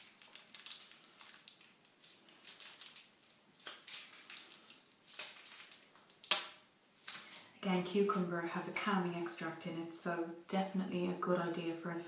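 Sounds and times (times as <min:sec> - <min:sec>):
sachet crinkling and clicking: 0:00.0 - 0:06.4
sachet crackle: 0:00.0 - 0:07.4.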